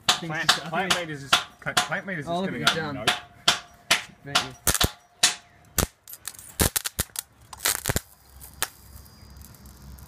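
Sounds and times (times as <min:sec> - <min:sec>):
electrical arcing cracks: 0:04.6 - 0:05.0, 0:05.8 - 0:10.0.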